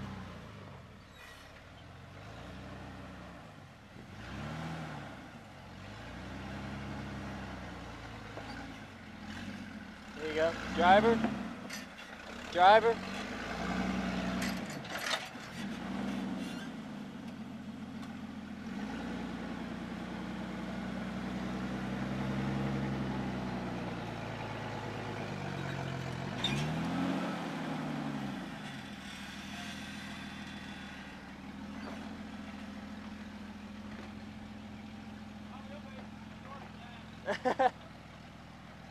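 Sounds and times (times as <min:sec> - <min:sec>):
engine revving: 0:02.1 - 0:17.0, 0:18.5 - 0:34.4.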